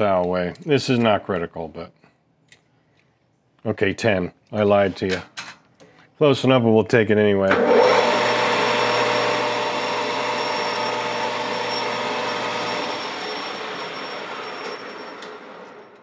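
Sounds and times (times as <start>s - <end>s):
lathe motor whirring: 7.5s - 16.0s
faint high whine: 9.8s - 16.0s.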